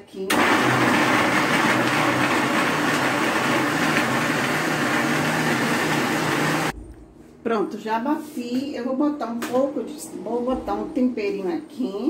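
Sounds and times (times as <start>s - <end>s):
blender motor whirring: 0.3s - 6.7s.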